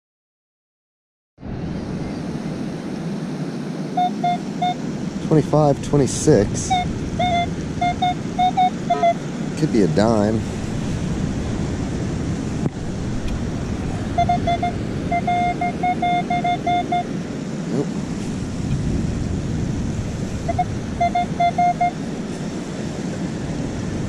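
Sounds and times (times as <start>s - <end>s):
ocean surf: 1.4s - 24.0s
wind hiss: 1.4s - 24.0s
metal detector beeps: 4.0s - 4.8s, 6.6s - 9.2s, 14.1s - 17.1s, 20.5s - 22.0s.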